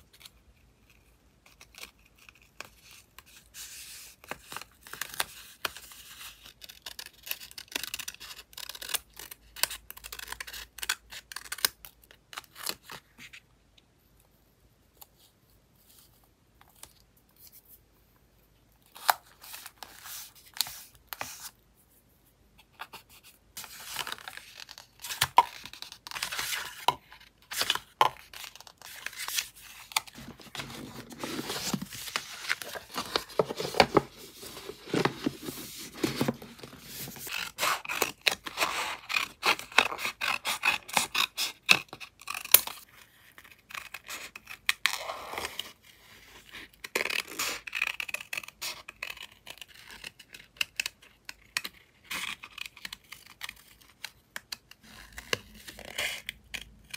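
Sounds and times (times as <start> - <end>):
paper rustling and scraping: 28.6 - 37.5.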